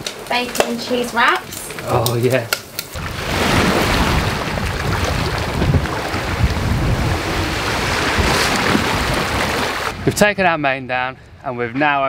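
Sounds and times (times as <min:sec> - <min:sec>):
water rushing past hull: 0:02.9 - 0:10.2
wind buffeting microphone: 0:02.9 - 0:12.0.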